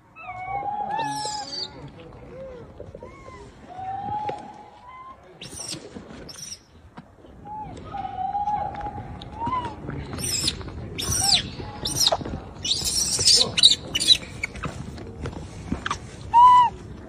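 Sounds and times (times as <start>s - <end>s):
baby monkeys cooing and squeaking: 0.2s - 1.8s, 5.4s - 6.6s, 10.2s - 14.6s.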